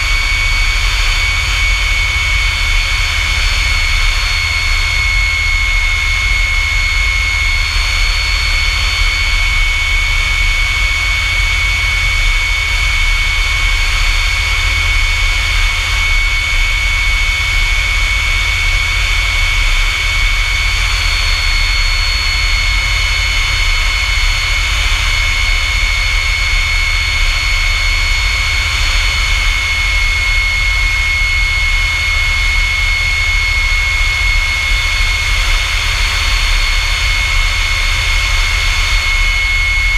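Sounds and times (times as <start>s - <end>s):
jet engine running steadily: 0.0s - 39.9s.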